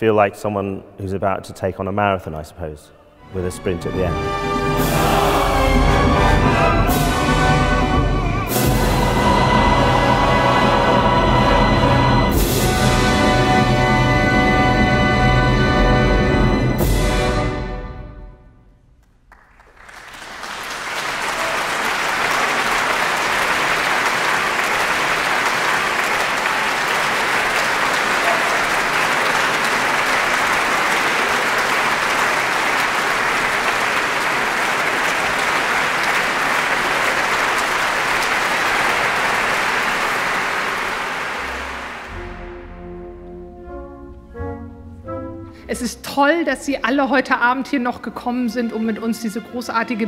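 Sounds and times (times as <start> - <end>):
audience applauding: 19.0 - 42.6.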